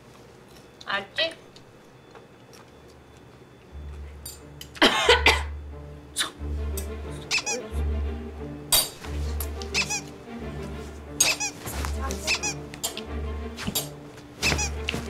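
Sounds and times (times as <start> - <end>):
squeaky sound effects: 7.2 - 7.7, 9.7 - 10.2, 11.2 - 12.7, 14.4 - 15.0.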